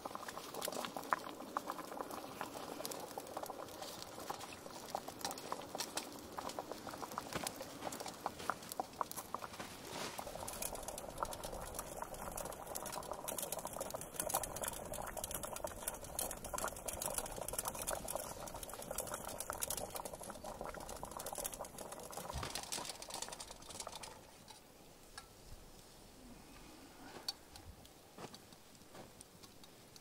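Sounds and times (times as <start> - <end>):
water boiling hard in a pot: 0.0 - 24.7
campfire crackles: 0.0 - 30.0.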